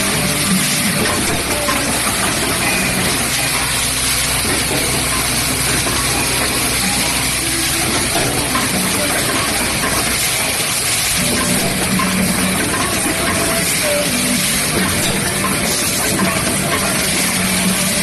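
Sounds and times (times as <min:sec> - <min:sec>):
low machine hum: 0:00.0 - 0:18.0
machine clatter and hiss: 0:00.0 - 0:18.0.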